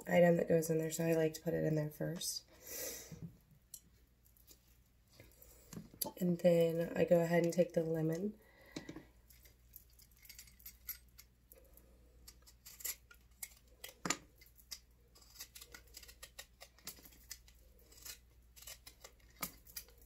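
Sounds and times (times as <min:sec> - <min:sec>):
blade scraping lemon peel: 0:12.2 - 0:20.0.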